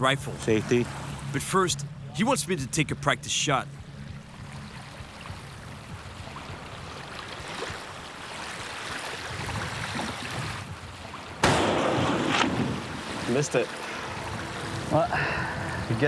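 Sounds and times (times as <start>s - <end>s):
small waves lapping: 0.0s - 2.1s, 3.6s - 16.0s
wind: 0.0s - 16.0s
rifle shot: 11.4s - 12.9s.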